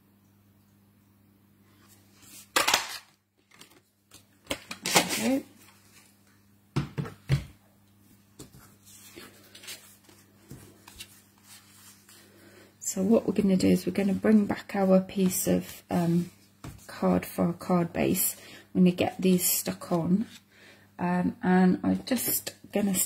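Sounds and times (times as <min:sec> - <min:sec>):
card rustling: 0:02.2 - 0:06.0, 0:08.7 - 0:12.2
paper handling: 0:02.2 - 0:06.1, 0:08.4 - 0:12.3.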